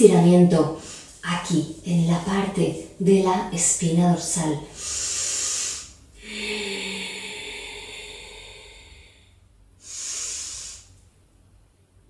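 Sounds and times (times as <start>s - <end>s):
person breathing: 4.7s - 11.0s.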